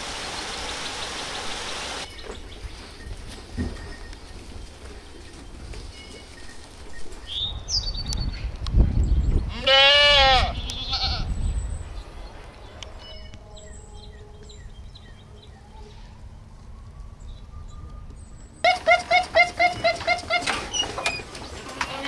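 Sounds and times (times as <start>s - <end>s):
sheep bleating: 9.5s - 11.3s.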